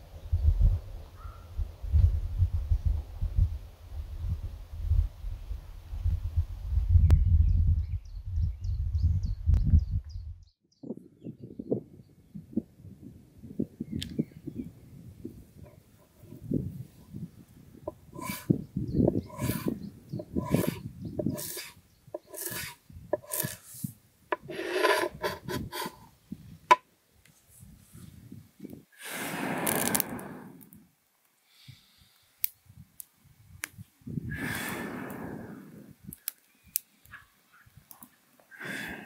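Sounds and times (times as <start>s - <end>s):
breath blowing on kindling: 17.9s - 26.1s, 28.9s - 32.4s, 34.2s - 36.2s, 38.5s - 39.0s
twigs crackling in fire: 29.0s - 31.4s, 32.1s - 35.2s, 35.8s - 38.2s.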